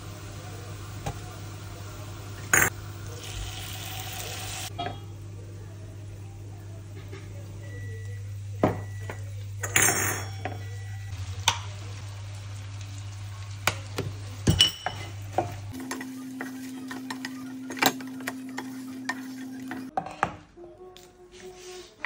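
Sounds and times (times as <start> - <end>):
sauce sizzling in a frying pan: 0.0 - 4.7, 11.1 - 19.4.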